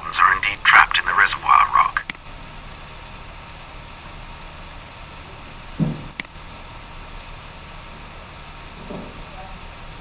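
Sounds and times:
microphone room hiss: 0:00.0 - 0:10.0
sharp click: 0:06.1 - 0:06.4.

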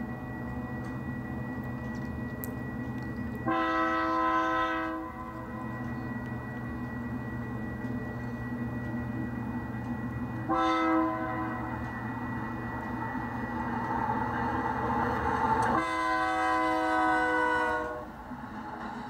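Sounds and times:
model train horn: 0:03.4 - 0:06.1, 0:10.4 - 0:11.9, 0:15.7 - 0:18.2.

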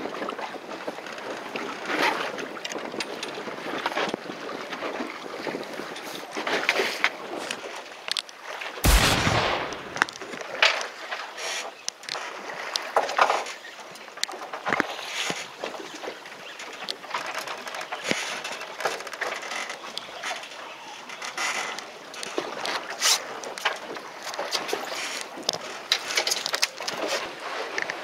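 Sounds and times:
wind: 0:00.0 - 0:28.0
loud thump: 0:08.9 - 0:10.2
water splashing: 0:08.9 - 0:10.5.

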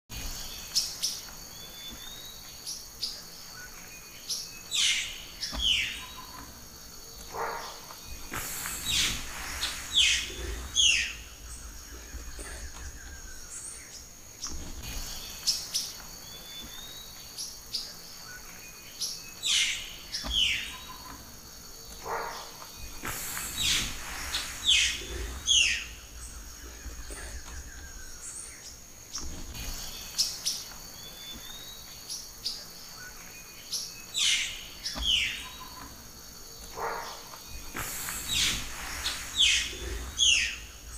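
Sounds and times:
insects trilling: 0:00.1 - 0:40.9
bird whistles and chirps: 0:07.4 - 0:11.2, 0:23.1 - 0:26.0, 0:36.7 - 0:40.7.

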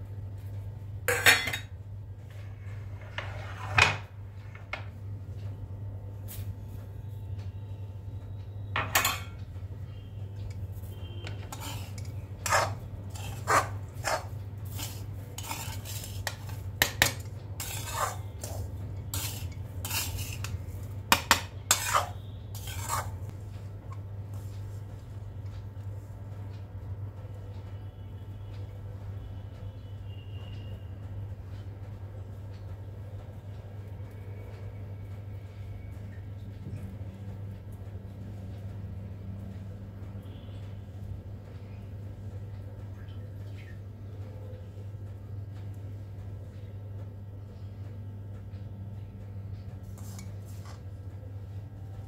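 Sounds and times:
spoon scraping metal pan: 0:11.2 - 0:23.3, 0:50.0 - 0:50.8.

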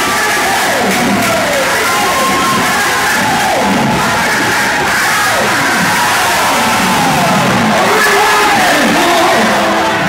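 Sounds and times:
crowd shouting and crying out: 0:00.0 - 0:10.0.

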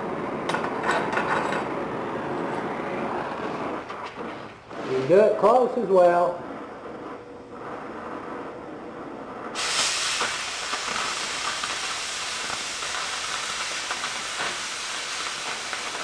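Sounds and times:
cutting torch hissing: 0:01.7 - 0:16.0
small crackles: 0:09.7 - 0:16.0.

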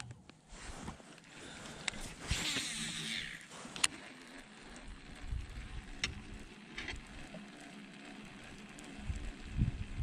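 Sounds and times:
fishing reel clicks and taps: 0:01.8 - 0:09.3.

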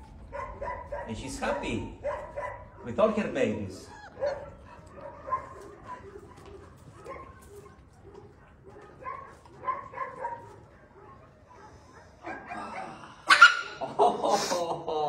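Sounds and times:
puppies whimpering and yipping: 0:03.7 - 0:07.2.

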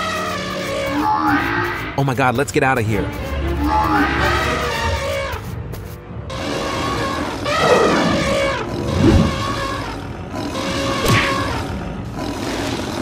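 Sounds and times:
background music: 0:00.0 - 0:13.0
cartoon animal roar: 0:07.1 - 0:13.0
heavy low thumps: 0:08.6 - 0:09.6.

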